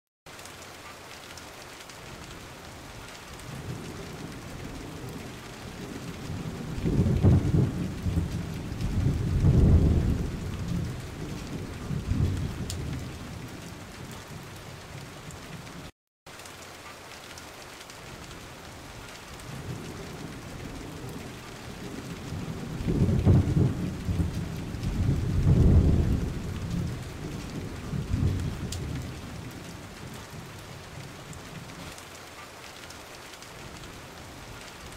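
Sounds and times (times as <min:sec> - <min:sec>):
rain hiss: 0:00.3 - 0:34.9
thunder rumbles: 0:03.3 - 0:15.9, 0:18.9 - 0:31.9.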